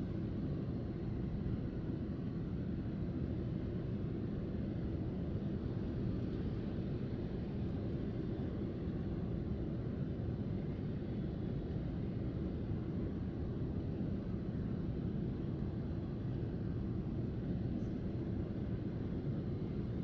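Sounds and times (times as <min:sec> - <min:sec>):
airliner cabin engine rumble: 0:00.0 - 0:20.0.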